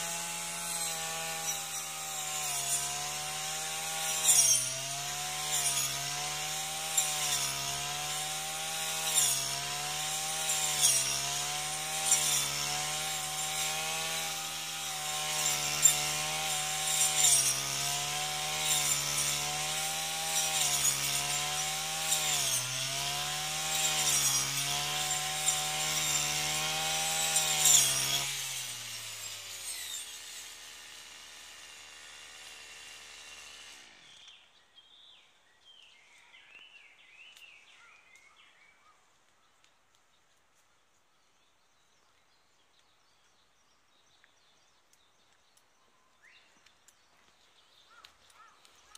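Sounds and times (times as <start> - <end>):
cutting head rasping grass: 0.0 - 34.4
brush cutter engine: 0.0 - 34.6.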